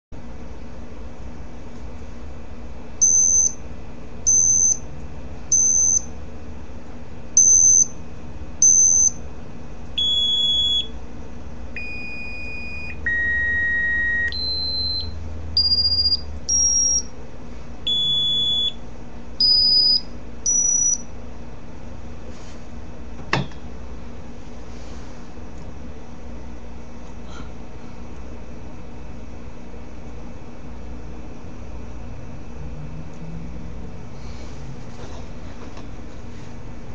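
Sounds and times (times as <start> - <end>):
smartphone beeps: 10.0 - 10.9, 11.8 - 17.0, 17.9 - 18.8.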